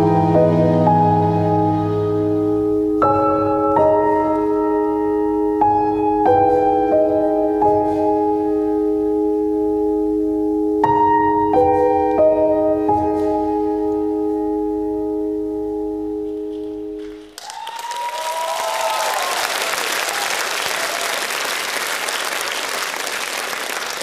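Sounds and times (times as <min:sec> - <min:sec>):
sustained keyboard chords: 0:00.0 - 0:17.4
audience applauding and cheering: 0:17.0 - 0:24.0
audience shouts: 0:17.4 - 0:21.5.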